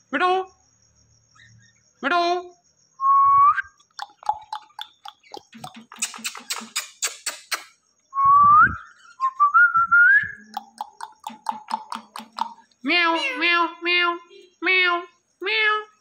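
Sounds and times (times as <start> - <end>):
parrot chattering in clicks: 3.9 - 7.8, 10.4 - 13.4
parrot quick chirps: 4.0 - 7.8, 10.4 - 12.6.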